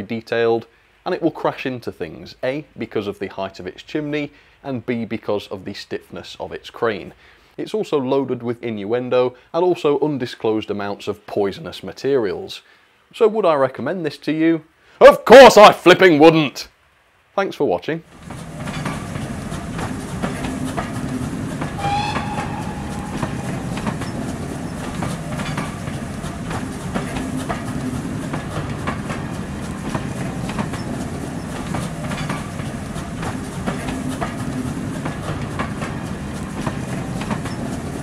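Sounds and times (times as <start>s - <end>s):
railway carriages rumbling: 18.1s - 38.0s
wheels clacking over rail joints: 18.1s - 38.0s
short high tone: 21.8s - 24.3s.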